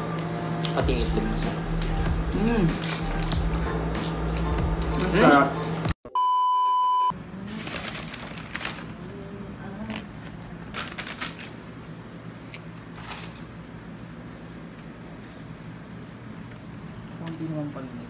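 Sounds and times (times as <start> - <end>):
high test-tone beep: 6.1 - 7.1
paper packaging rustling: 7.5 - 9.2, 10.6 - 11.6, 12.9 - 13.6.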